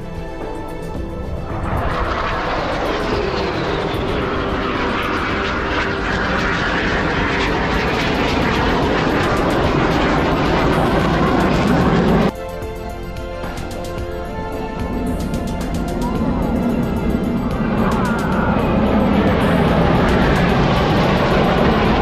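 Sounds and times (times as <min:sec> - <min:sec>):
jet whine falling in pitch: 0:00.0 - 0:12.3, 0:13.0 - 0:22.0
jet engine rush: 0:00.0 - 0:22.0.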